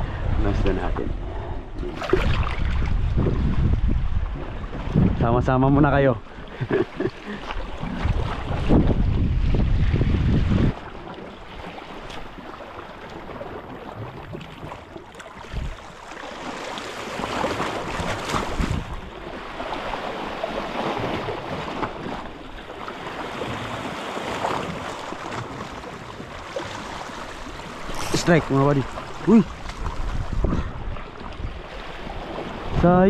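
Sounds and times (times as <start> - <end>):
wind rumble on microphone: 0.0 - 12.5, 13.1 - 16.0, 17.1 - 33.0
waves splashing over rocks: 10.0 - 33.0.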